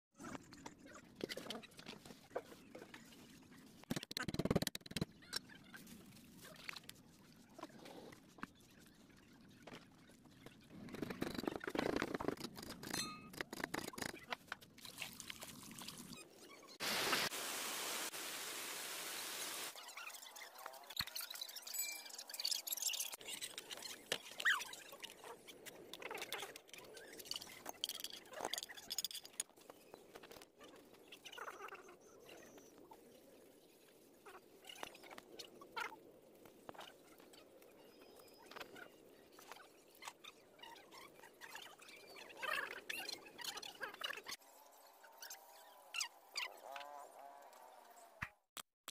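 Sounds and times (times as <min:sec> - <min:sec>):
steady hiss: 0:16.8 - 0:19.7.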